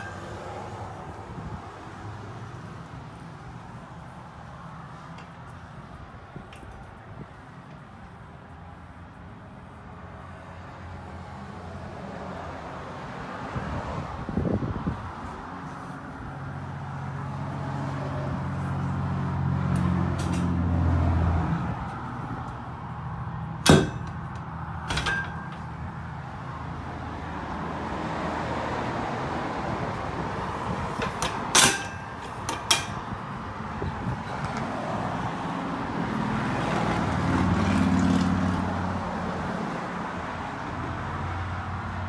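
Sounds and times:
metal clanks of stall divider latch: 23.6 - 25.8, 30.9 - 33.2.

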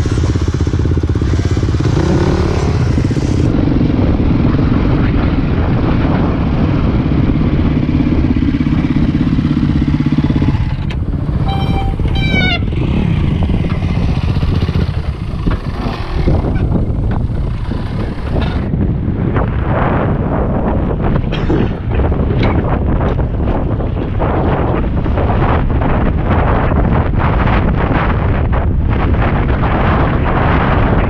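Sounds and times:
dirt bike engine running: 0.0 - 31.0
brief high squeal: 11.5 - 12.6
knocks and rattles: 21.2 - 25.3.

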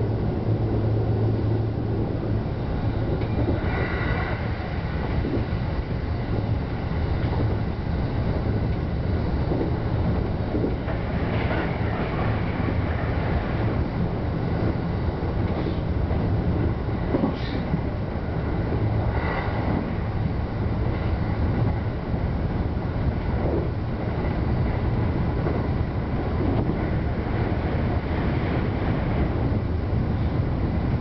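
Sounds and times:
train wheels rumbling: 0.0 - 31.0.

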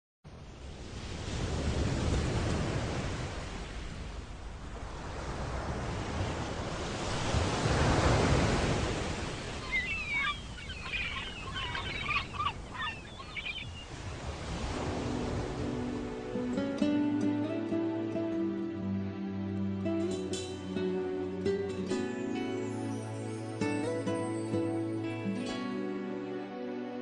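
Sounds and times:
wind: 0.2 - 27.0
surf breaking on rocks: 4.8 - 11.6, 13.7 - 16.5
gulls calling: 9.2 - 14.1.

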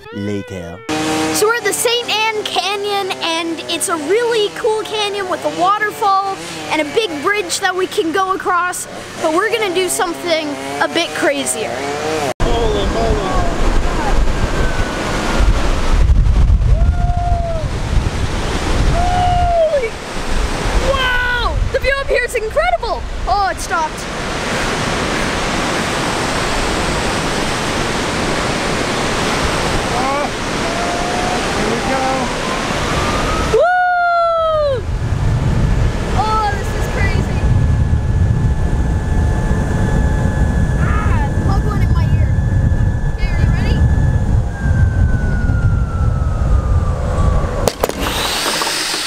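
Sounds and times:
zip line trolley whine: 0.0 - 21.1, 23.3 - 49.0
wind rumble on microphone: 12.4 - 48.7
waterfall rushing: 23.4 - 33.6.

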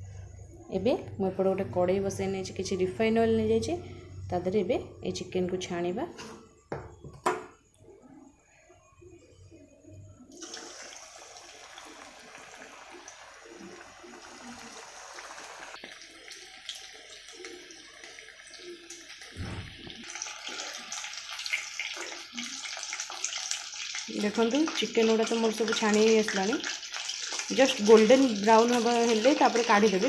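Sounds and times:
chicken sizzling in hot oil: 10.3 - 30.0
oil crackling and popping: 10.4 - 30.0
dull thump: 19.4 - 20.0.

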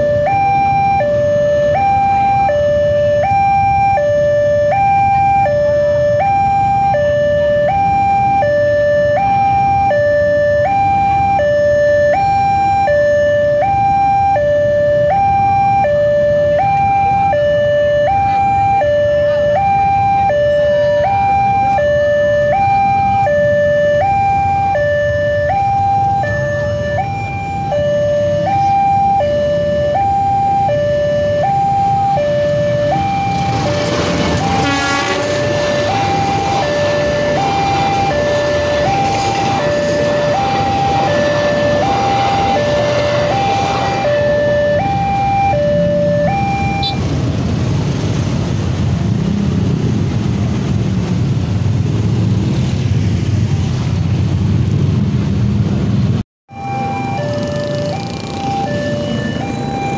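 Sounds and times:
two-tone level-crossing alarm: 0.0 - 47.1, 56.5 - 59.9.

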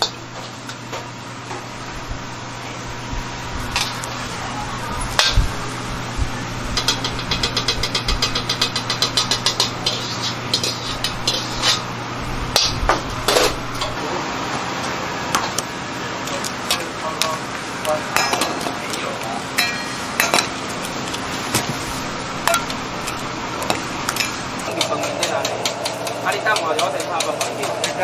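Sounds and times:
steady low hum: 0.0 - 28.0
metal ladle scraping a wok: 6.8 - 11.9.

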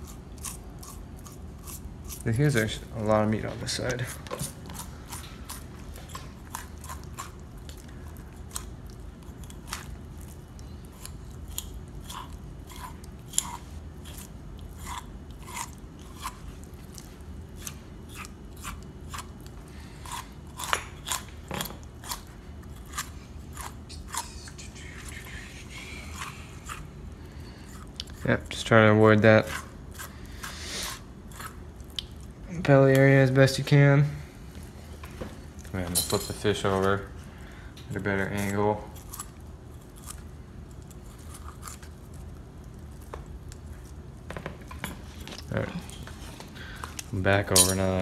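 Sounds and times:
knife crunching through fish: 11.0 - 21.3.

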